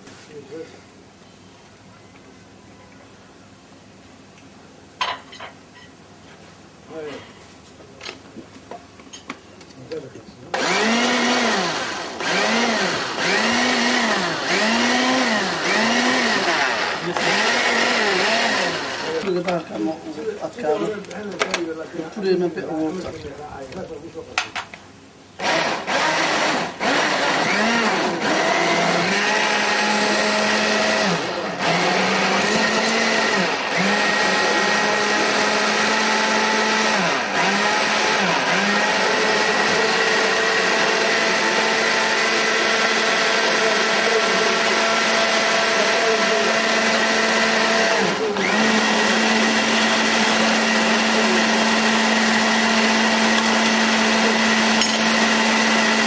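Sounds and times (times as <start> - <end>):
blender motor running: 10.6 - 19.4, 25.4 - 56.0.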